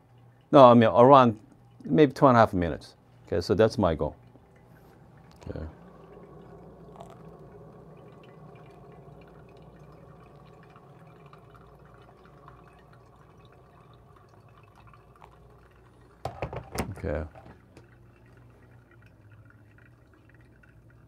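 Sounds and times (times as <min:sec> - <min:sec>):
water trickling onto coffee grounds: 0:00.0 - 0:21.0.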